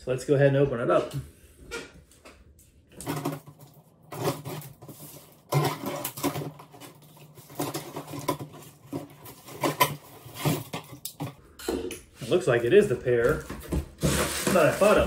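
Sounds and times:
cardboard box scraping and rustling: 14.0s - 15.0s.

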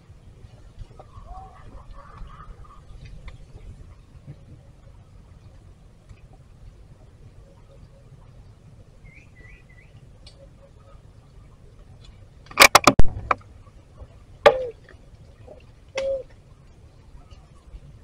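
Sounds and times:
faint bird chirps: 7.4s - 11.6s.

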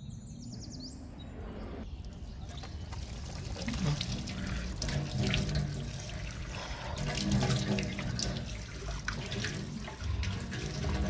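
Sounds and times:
water splashing while washing: 2.4s - 11.0s
tap water running into sink: 3.0s - 11.0s.

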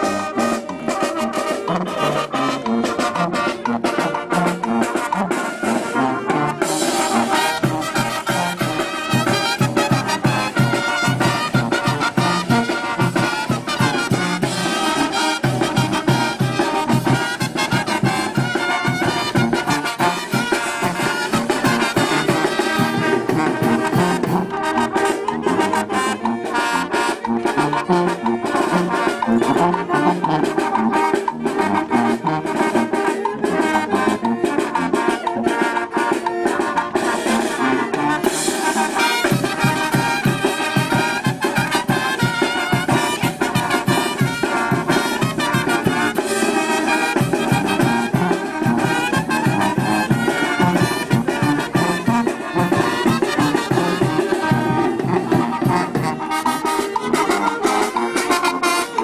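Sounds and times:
brass band playing latin dance tune: 0.0s - 59.0s.

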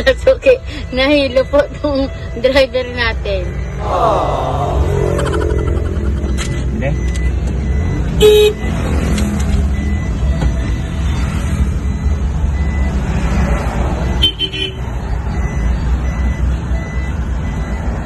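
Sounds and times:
car engine and road noise: 0.0s - 18.0s
short high beep: 3.5s - 8.7s.

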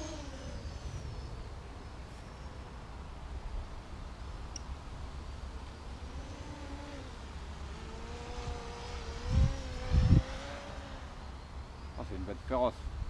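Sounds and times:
model plane motor hum: 0.0s - 1.4s, 5.6s - 11.3s
wind rumble on microphone: 7.8s - 11.2s.

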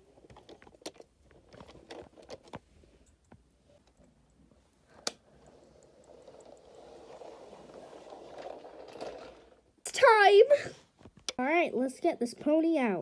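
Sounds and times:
soft rustling: 0.0s - 9.6s.

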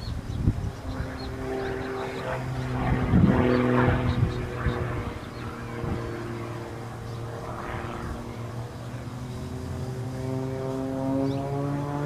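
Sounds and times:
propeller plane engine drone: 0.0s - 12.0s.

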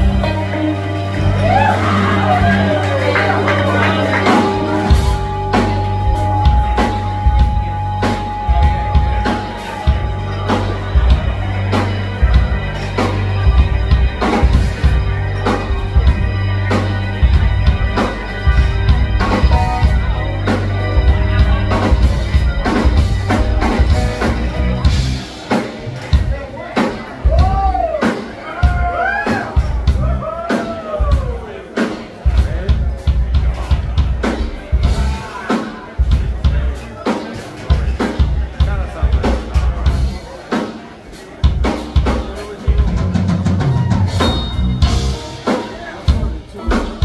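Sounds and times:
electric guitars: 0.0s - 26.3s
bass line: 0.0s - 26.5s, 28.6s - 31.5s, 32.3s - 35.4s, 41.4s - 47.0s
drum kit beat: 0.0s - 47.0s.

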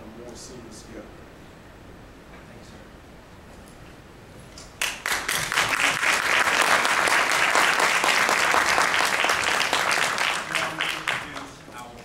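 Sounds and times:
audience applause: 4.8s - 11.7s.

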